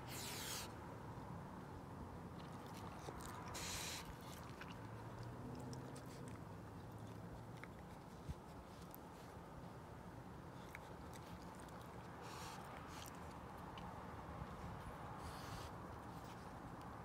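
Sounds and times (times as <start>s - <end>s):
raccoon hissing: 0.1s - 0.8s, 3.5s - 4.1s
raccoons chewing and clicking: 2.2s - 17.0s.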